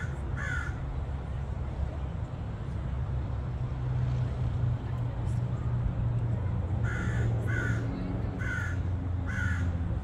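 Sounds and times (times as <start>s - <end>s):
crow cawing: 0.0s - 0.8s, 6.8s - 7.8s, 8.4s - 9.8s.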